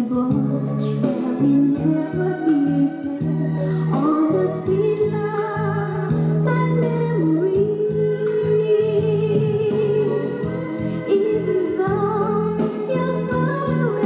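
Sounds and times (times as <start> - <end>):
bass and band accompaniment: 3.2 - 14.0.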